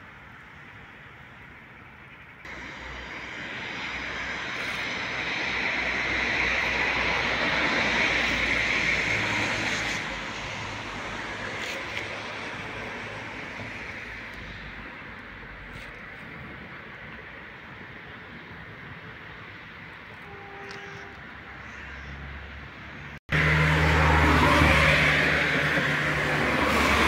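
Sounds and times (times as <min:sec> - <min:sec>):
aircraft engine rushing overhead: 0:02.5 - 0:15.1, 0:23.3 - 0:27.0.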